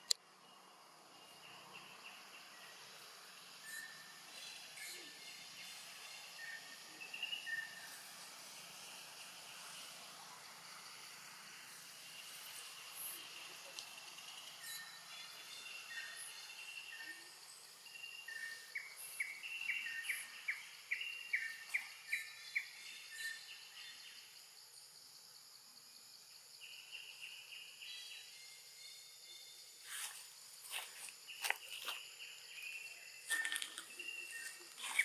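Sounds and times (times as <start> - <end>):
bird chirping: 0.0 - 24.8, 25.8 - 35.0
insect drone: 0.0 - 35.0.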